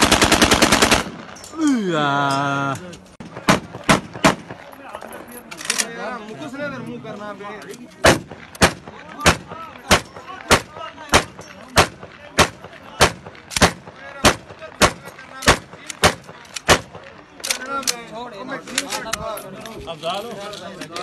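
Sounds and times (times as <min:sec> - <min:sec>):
rifle firing single shots: 0:00.0 - 0:01.4, 0:03.2 - 0:04.7, 0:08.0 - 0:18.0.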